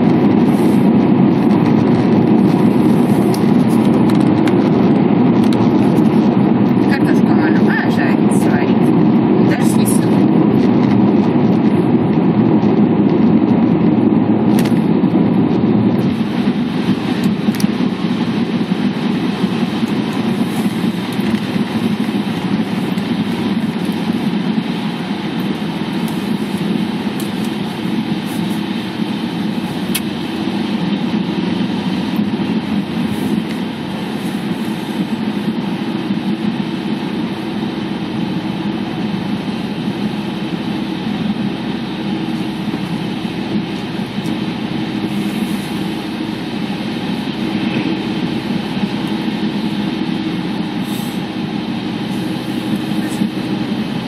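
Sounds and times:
car engine running: 0.0 - 54.0
road and tyre rumble: 0.0 - 54.0.

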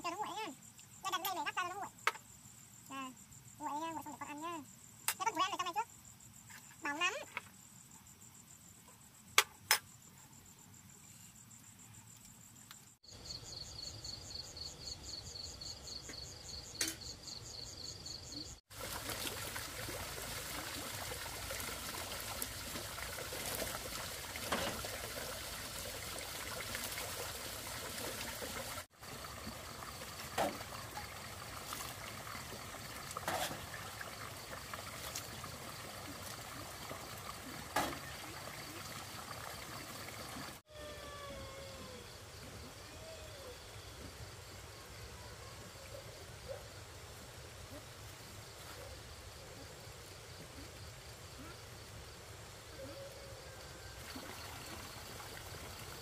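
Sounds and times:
crickets chirping: 0.0 - 56.0
water poured splashing: 18.7 - 40.6, 54.0 - 56.0.

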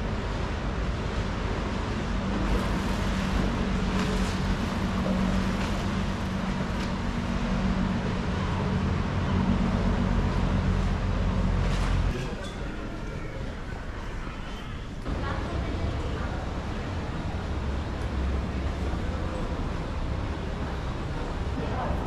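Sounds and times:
motorboat engine humming: 0.0 - 13.9, 14.9 - 22.0
outdoor background noise: 0.0 - 22.0.

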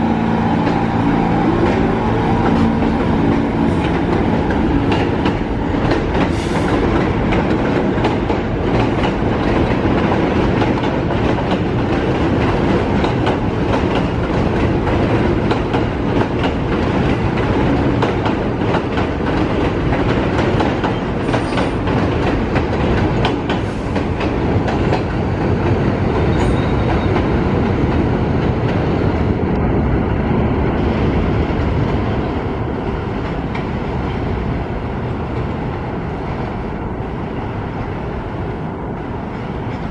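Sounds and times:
subway train rumble: 0.0 - 39.9
wheels clacking over rail joints: 0.4 - 28.9.

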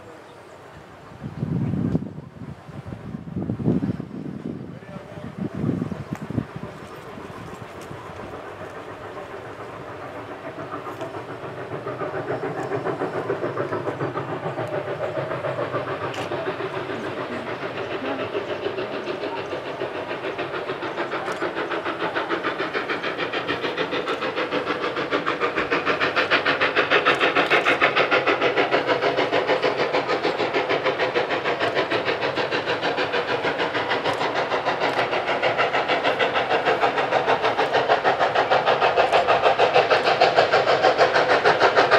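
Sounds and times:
steam locomotive exhaust beats: 0.0 - 41.9.

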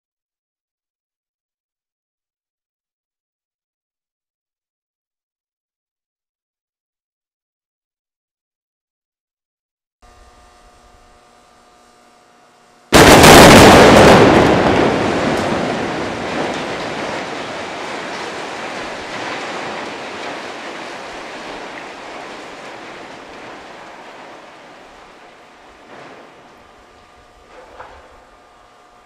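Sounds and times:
loud explosive blast: 12.9 - 28.3.

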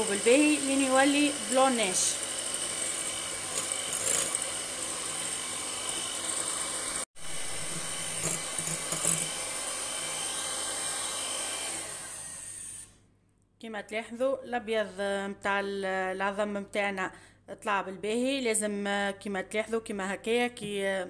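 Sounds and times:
electric hand mixer running: 0.0 - 12.9.

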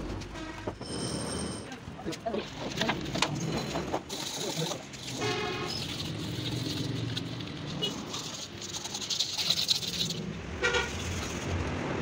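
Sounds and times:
low traffic hum: 0.0 - 12.0
brush scrubbing metal: 4.1 - 10.2.

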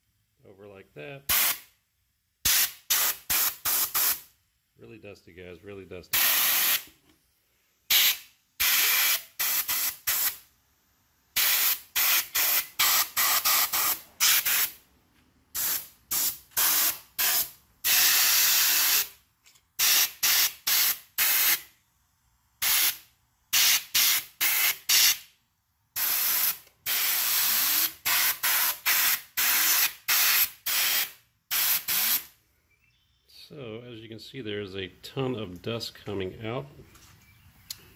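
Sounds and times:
compressed air blow gun hissing: 1.3 - 1.7, 2.4 - 4.3, 6.1 - 6.9, 7.9 - 10.5, 11.3 - 14.8, 15.5 - 19.2, 19.8 - 21.7, 22.6 - 25.3, 26.0 - 32.3.

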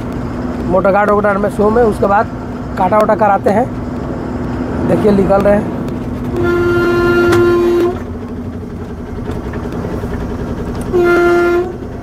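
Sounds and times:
truck engine running: 0.0 - 12.0
truck horn blasts: 6.3 - 8.2, 10.8 - 12.0.

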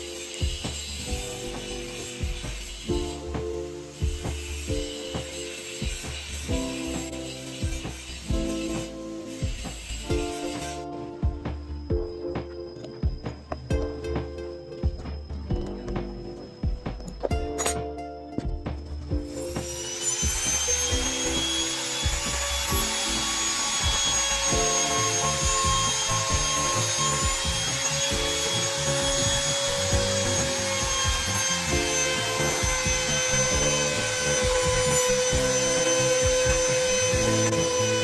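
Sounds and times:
router bit cutting plywood: 0.0 - 10.8, 19.4 - 38.0
router whining: 0.0 - 14.0, 18.8 - 38.0.

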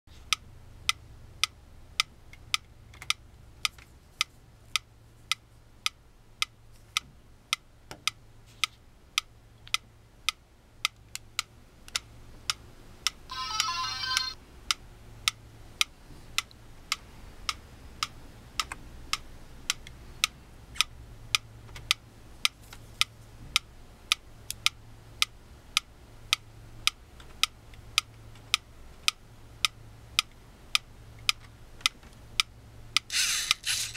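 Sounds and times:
mechanical metronome ticking: 0.3 - 8.2, 9.1 - 33.9
electronic beeping: 13.3 - 14.4.

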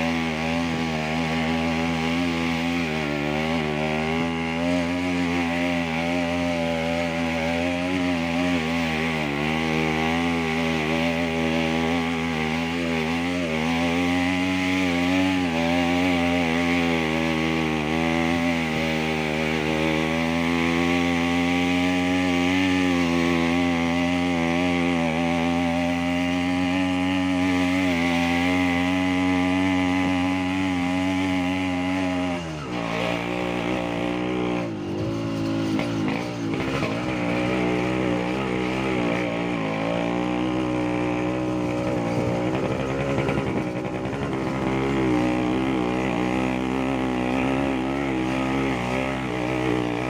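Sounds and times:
small motorcycle engine running: 0.0 - 50.0.

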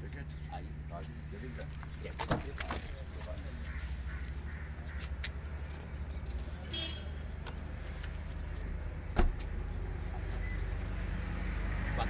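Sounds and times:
car door slamming shut: 9.1 - 9.4.

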